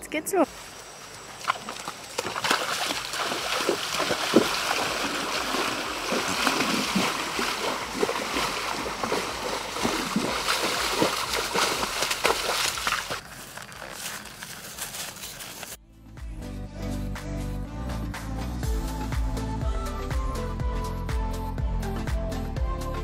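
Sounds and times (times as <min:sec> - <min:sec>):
horse hooves splashing water: 0:00.5 - 0:15.2.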